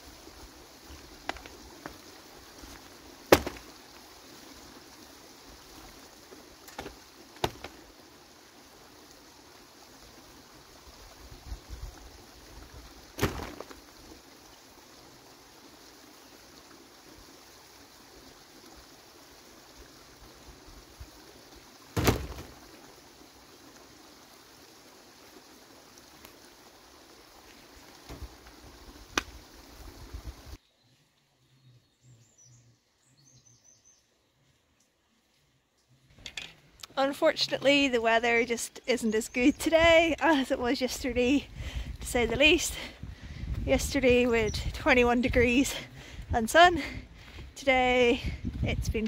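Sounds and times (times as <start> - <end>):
steady hiss: 0.0 - 30.6.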